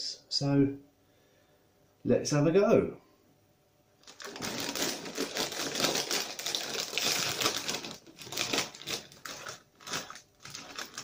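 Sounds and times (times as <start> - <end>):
plastic snack bag crackling: 4.0 - 11.0.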